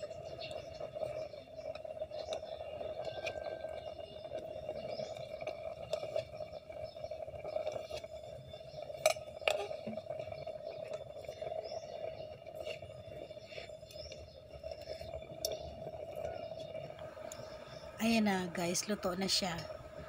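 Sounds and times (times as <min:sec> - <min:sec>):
steady low hum: 0:12.8 - 0:20.0.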